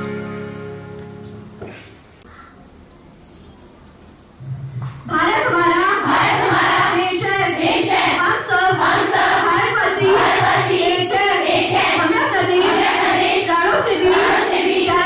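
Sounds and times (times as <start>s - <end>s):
girls chanting in unison: 5.7s - 15.0s.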